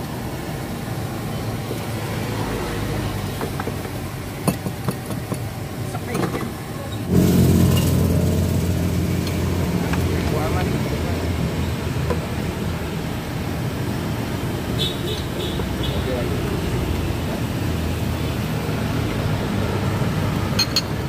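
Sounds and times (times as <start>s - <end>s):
motor vehicle engine running close: 0.0s - 21.0s
street traffic: 0.0s - 21.0s
utensils clinking against bowls: 20.6s - 21.0s.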